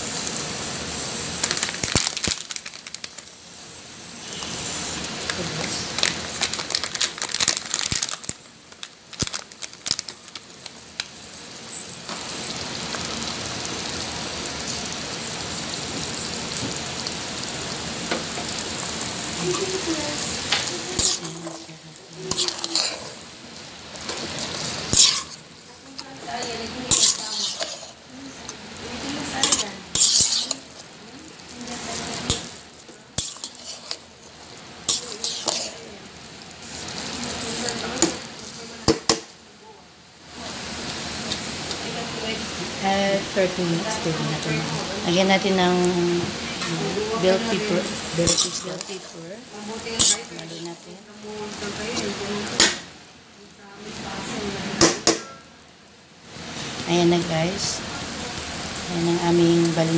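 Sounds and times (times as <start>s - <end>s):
rice mixture sizzling in pan: 0.0s - 59.9s
utensil stirring rice in pan: 17.9s - 39.2s, 45.2s - 52.9s.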